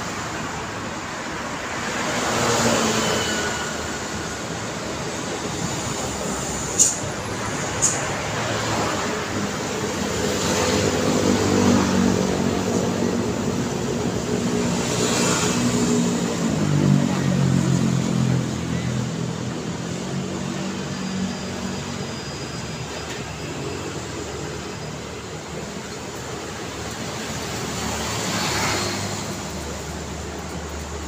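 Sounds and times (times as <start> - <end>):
faint traffic hum: 0.0 - 31.0
motorcycle and car engines passing: 8.3 - 22.1, 26.6 - 31.0.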